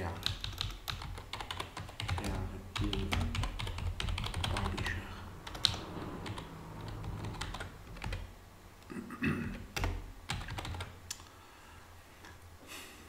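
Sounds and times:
computer keyboard typing: 0.0s - 8.3s, 9.7s - 11.0s
faint low hum: 0.0s - 13.0s.

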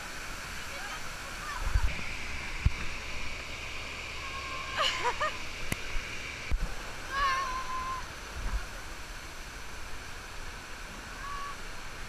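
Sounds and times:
rush of pumped water: 0.0s - 12.0s
high-pitched shout: 7.1s - 8.1s.

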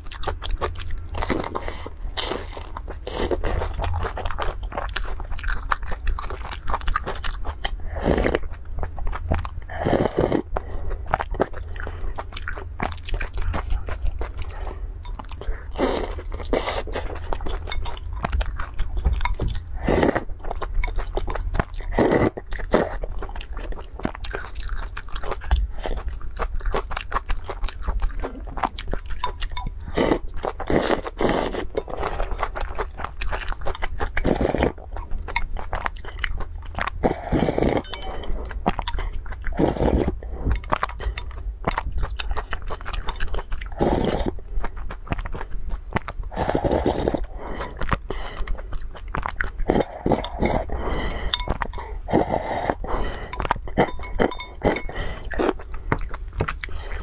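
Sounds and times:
chewing and crunching: 0.0s - 57.0s
slurping noodles and broth: 9.7s - 10.8s, 19.8s - 20.3s, 21.9s - 23.0s, 29.9s - 32.4s, 37.0s - 38.0s, 39.5s - 41.2s, 43.8s - 44.4s, 46.3s - 48.5s, 49.6s - 55.6s.

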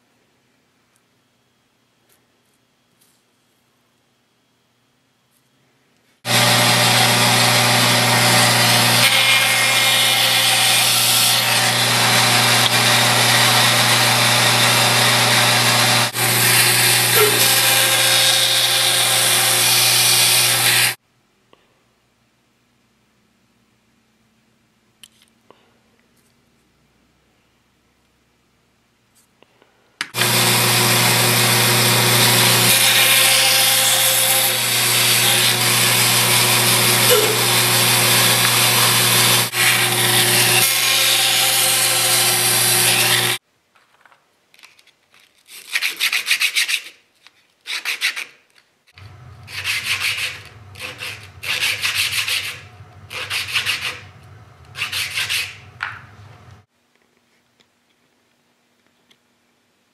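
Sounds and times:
woodworking power tool humming: 6.3s - 21.0s, 30.1s - 43.4s, 49.0s - 56.7s
rubbing strokes on wood: 49.4s - 56.2s.

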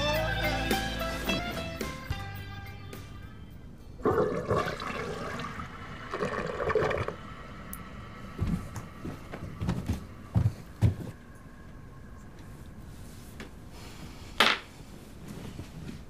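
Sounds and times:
toilet flushing: 4.0s - 10.3s.

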